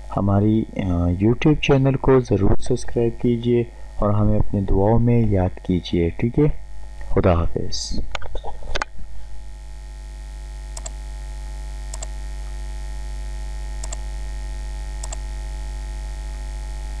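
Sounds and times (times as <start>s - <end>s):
electrical mains hum: 0.0s - 17.0s
computer mouse double clicks: 11.9s - 12.1s, 13.8s - 14.0s, 15.0s - 15.2s.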